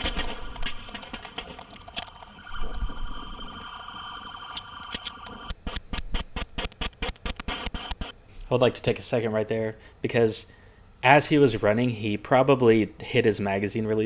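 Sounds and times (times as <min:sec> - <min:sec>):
electronic alarm tone: 0:01.8 - 0:05.6.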